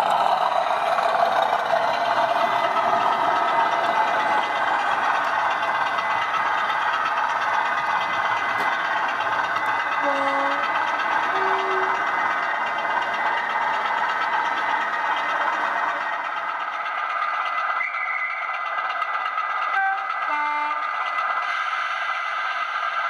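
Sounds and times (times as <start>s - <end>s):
model locomotive engine hum: 0.0s - 23.0s
short train horn notes: 10.0s - 10.6s, 11.3s - 12.0s, 19.8s - 20.8s.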